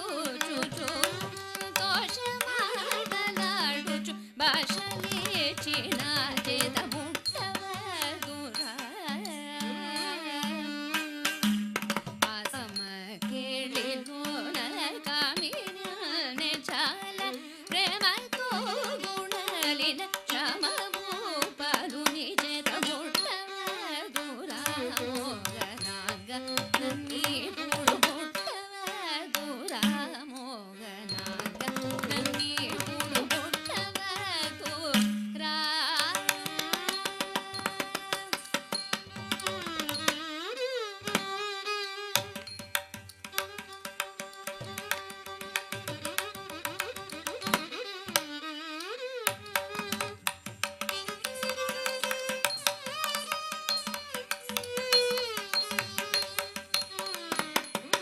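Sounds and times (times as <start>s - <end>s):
woman singing: 0.0s - 42.4s, 43.4s - 58.0s
violin: 0.0s - 58.0s.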